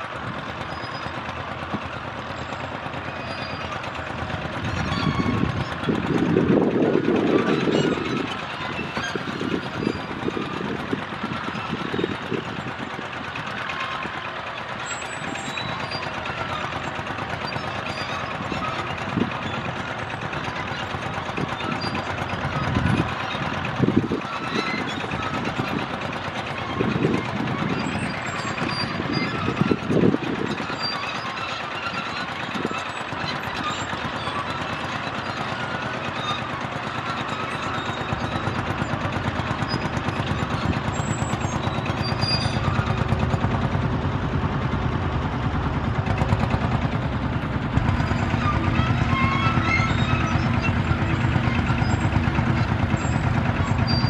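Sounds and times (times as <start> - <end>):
tractor engines running: 0.0 - 54.0
deep engine hum: 37.9 - 54.0.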